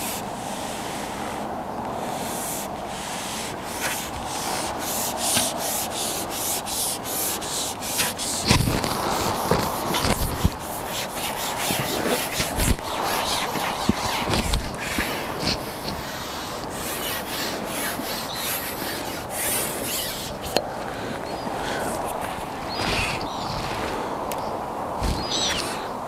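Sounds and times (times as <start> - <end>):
rubbing and scraping strokes: 0.0 - 24.1, 25.0 - 25.9
dull thumps: 7.3 - 18.4.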